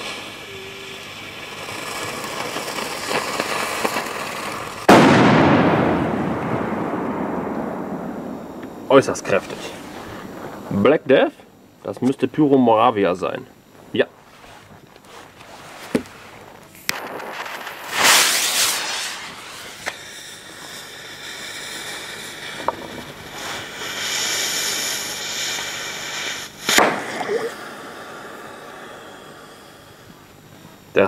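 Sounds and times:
rushing burst and hiss: 0.0s - 6.2s, 16.0s - 30.5s
firecracker fizzling: 0.0s - 11.8s, 14.2s - 31.0s
sharp crack: 1.5s - 11.6s, 16.7s - 29.1s.

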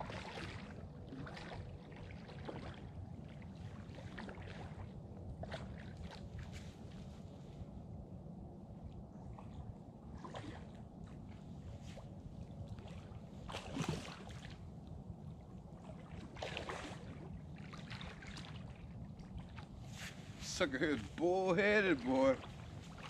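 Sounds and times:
water: 0.0s - 23.0s
wind: 0.0s - 23.0s
short rustling scrapes: 19.8s - 20.5s.

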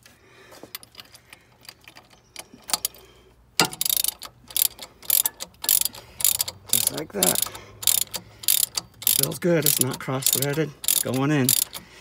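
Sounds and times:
tools being handled: 0.0s - 12.0s
ratchet wrench clicking: 3.6s - 11.9s.

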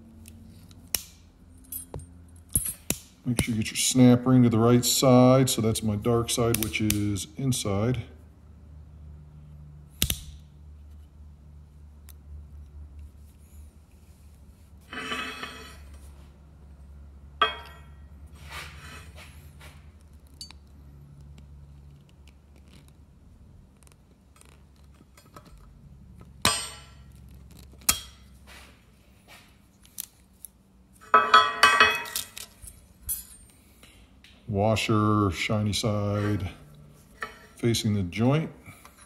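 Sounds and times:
metallic clicks of pliers and ring: 1.6s - 3.5s, 20.3s - 20.8s.

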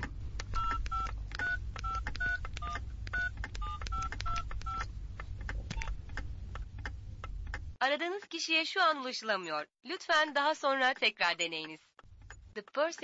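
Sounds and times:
touch-tone keypad beeps: 0.6s - 4.9s.

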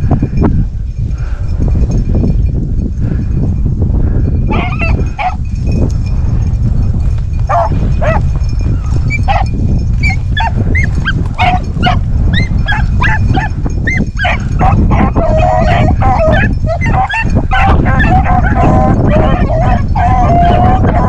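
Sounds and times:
hounds baying and yelping: 4.5s - 5.5s, 7.4s - 21.0s.

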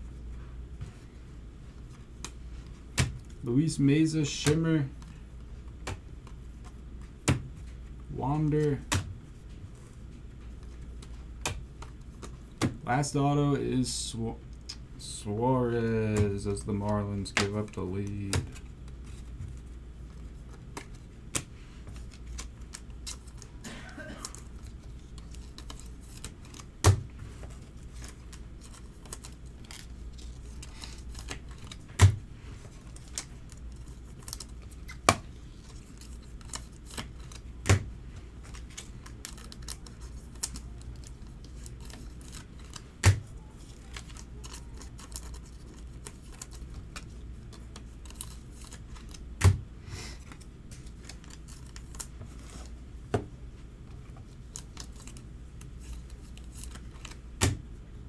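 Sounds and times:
plastic card sleeves clicking: 38.4s - 49.5s.

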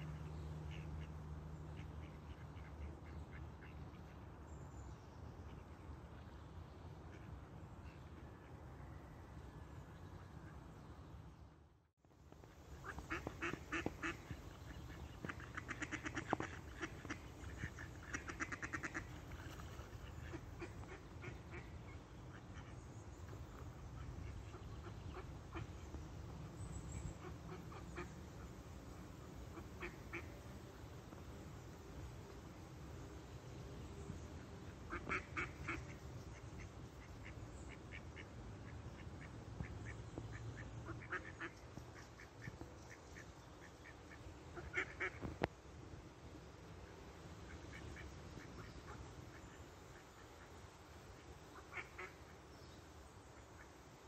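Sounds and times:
ducks quacking: 12.8s - 22.8s, 29.5s - 30.4s, 34.9s - 42.6s, 43.6s - 45.4s, 51.6s - 52.3s.

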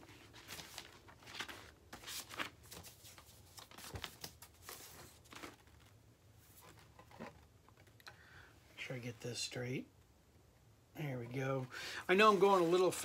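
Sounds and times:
paper sleeve rustling: 0.0s - 6.9s, 12.1s - 13.0s.

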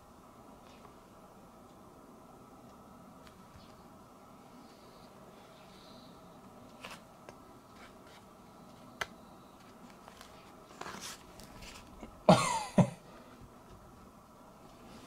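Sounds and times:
soft rustle: 9.6s - 12.0s
person coughing: 12.2s - 13.0s.

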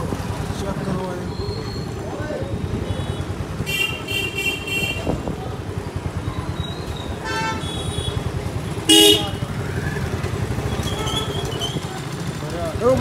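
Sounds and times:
vehicle engine rumbling: 0.0s - 13.0s
car horn toot: 7.2s - 8.2s, 8.8s - 9.4s.

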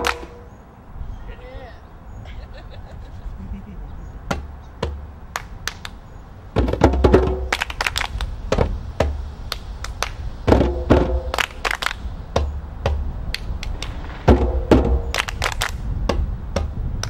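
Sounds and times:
djembe hand drumming: 6.6s - 7.6s.

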